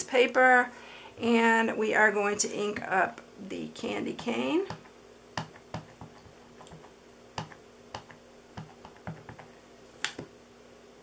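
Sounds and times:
rubber stamp tapping ink pad: 7.4 - 9.5.

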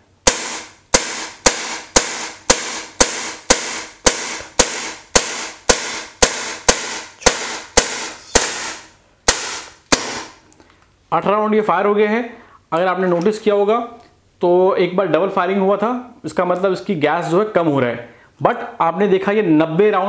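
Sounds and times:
bb pistol shots: 0.2 - 10.4.

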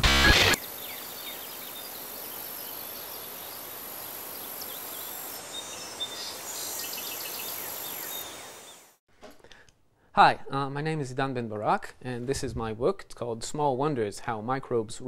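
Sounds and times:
steady environmental hiss: 0.6 - 9.0.

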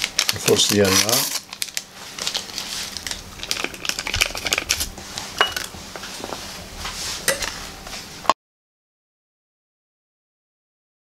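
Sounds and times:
paper sachet crinkling: 0.0 - 5.0.

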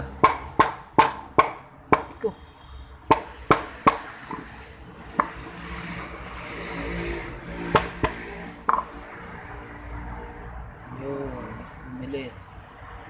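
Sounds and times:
rubbing scrape: 4.1 - 8.7.

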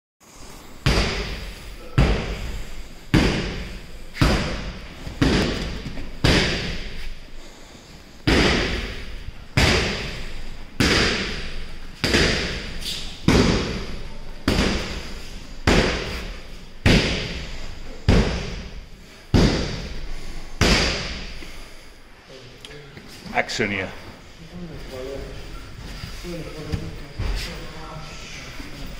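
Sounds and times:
heavy thumps echoing in a hall: 0.7 - 21.8, 25.2 - 28.9.

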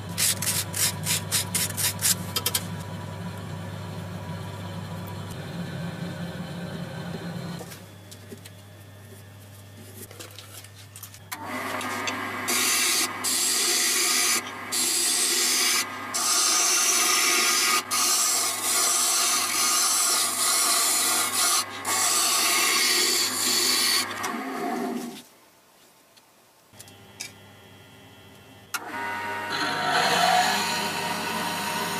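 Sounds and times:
workpiece rasping against sander: 0.0 - 2.6, 12.5 - 24.2, 29.5 - 31.9.

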